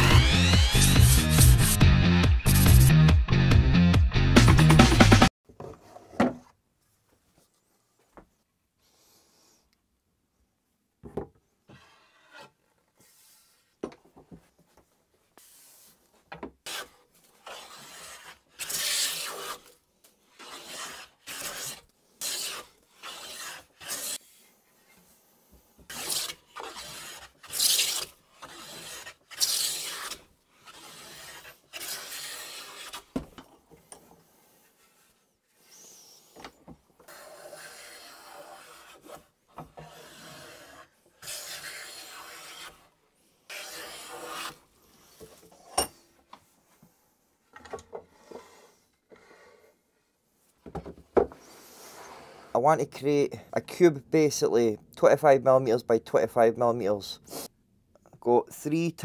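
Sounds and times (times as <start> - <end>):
hand plane rasping on wood: 16.7 - 19.7, 20.3 - 24.4, 25.9 - 33.1, 37.1 - 39.2, 39.8 - 42.9, 43.5 - 44.6.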